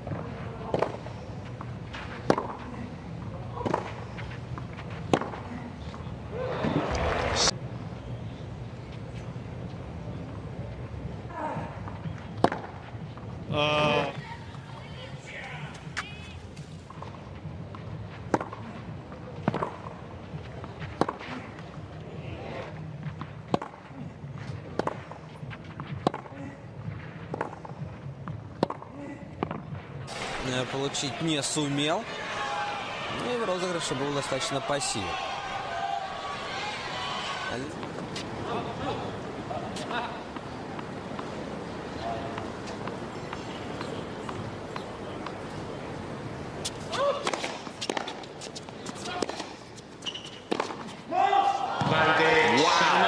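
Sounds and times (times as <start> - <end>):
racquets hitting tennis ball: 0.0 - 2.7, 3.5 - 5.5, 27.3 - 51.0
hushed crowd hum: 0.0 - 28.2, 28.9 - 53.0
tennis racquet hitting ball: 42.3 - 49.6, 50.5 - 50.9.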